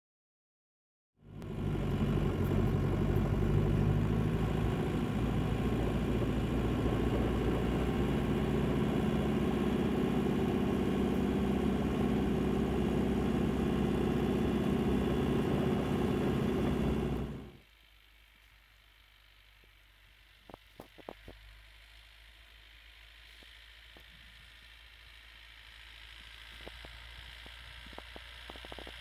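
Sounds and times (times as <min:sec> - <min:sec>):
truck diesel engine running: 0:01.2 - 0:17.6.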